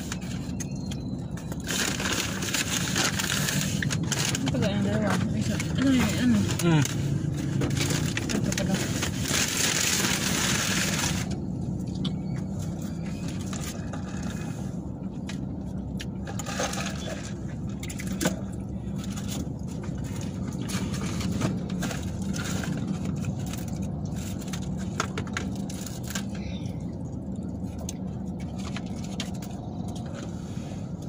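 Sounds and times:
low hum in car cabin: 0.0 - 31.0
paper wrappers rustling: 1.3 - 11.4, 18.9 - 26.4.

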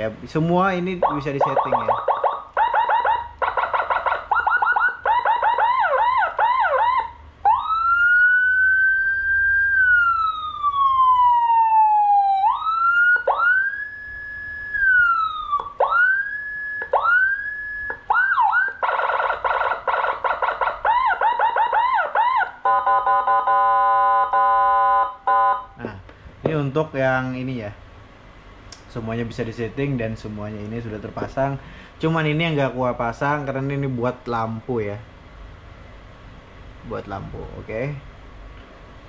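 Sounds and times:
siren wailing and yelping: 1.0 - 25.6.

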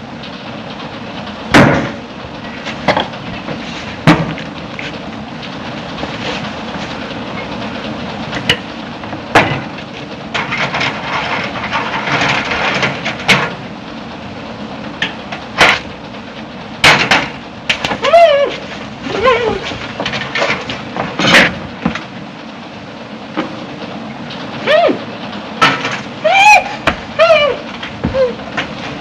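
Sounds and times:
sharp cracks or bangs: 16.8 - 18.0.

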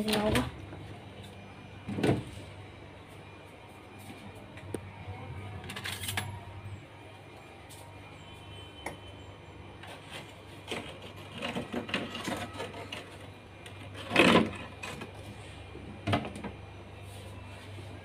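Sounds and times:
steady low hum: 0.0 - 11.8.

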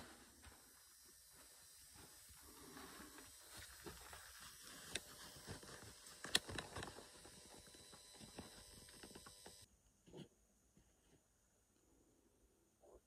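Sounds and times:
footsteps: 0.0 - 8.8
camera handling noise: 6.2 - 7.4.

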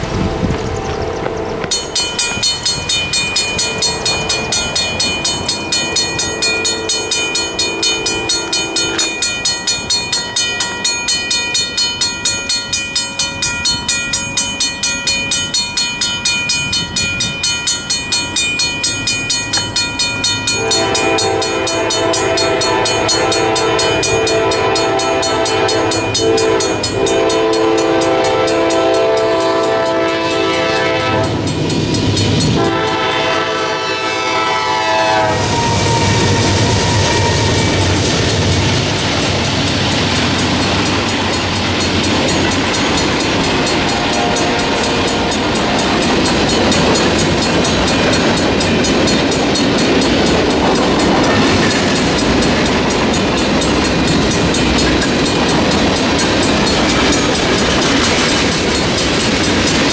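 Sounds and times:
crossing bell ringing: 0.0 - 59.9
locomotive horn blowing: 6.2 - 9.3, 20.5 - 31.4, 32.6 - 38.2, 43.7 - 46.1.

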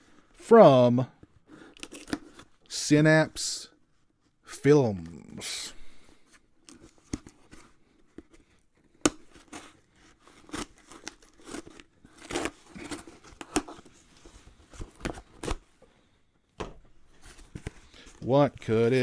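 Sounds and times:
package cutting and tearing: 1.7 - 2.5, 8.4 - 14.0.

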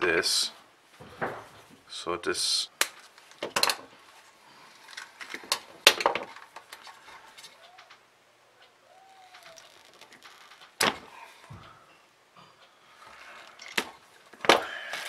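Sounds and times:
wires and connectors rattling: 2.9 - 4.0, 4.7 - 8.0, 9.2 - 11.2, 13.1 - 15.0.

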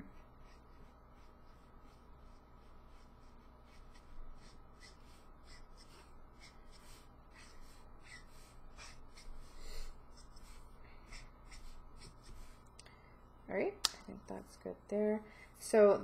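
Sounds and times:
marker swishing on paper: 0.1 - 12.7.

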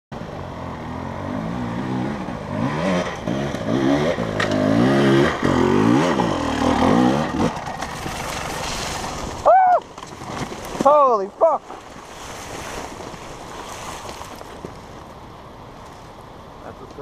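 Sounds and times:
dirt bike engine revving: 0.4 - 9.4
person shouting: 9.4 - 9.8.

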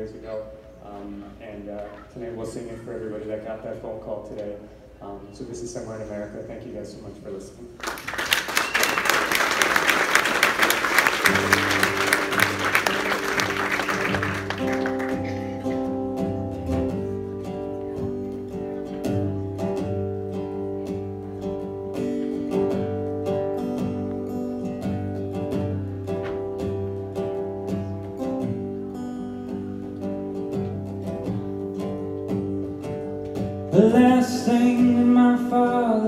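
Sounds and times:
electric and acoustic guitars: 0.0 - 5.8, 8.0 - 36.0
audience applause: 7.8 - 16.0.

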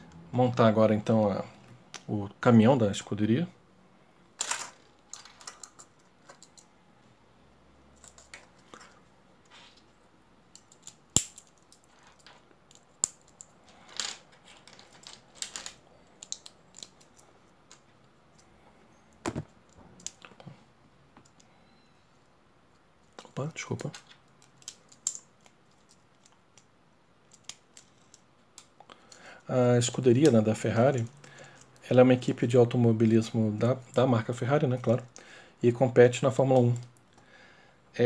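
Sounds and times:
plastic bricks clicking together: 10.5 - 17.8, 23.0 - 26.7.

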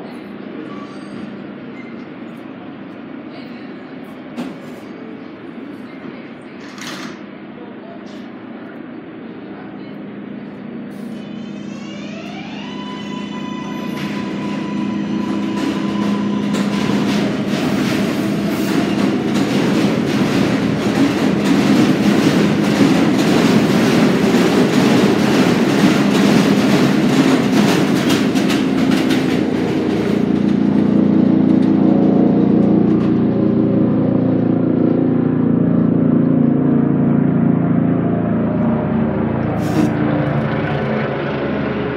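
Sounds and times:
subway train motor whine: 0.0 - 41.9
train wheels clattering over rail joints: 15.2 - 33.3.

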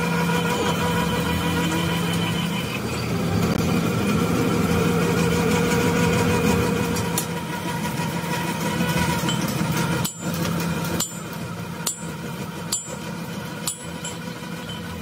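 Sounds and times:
metalworking machinery hum: 0.0 - 15.0
sharp metallic knocks: 9.1 - 15.0.

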